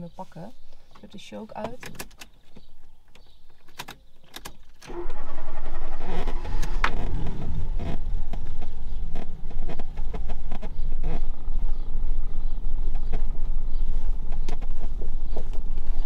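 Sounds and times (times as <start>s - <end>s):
starter motor cranking engine: 4.8s - 11.4s.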